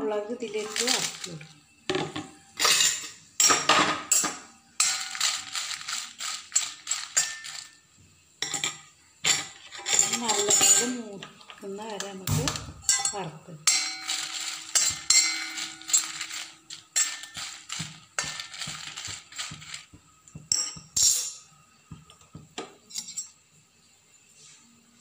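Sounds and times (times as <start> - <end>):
utensil scraping metal pan: 13.7 - 19.8.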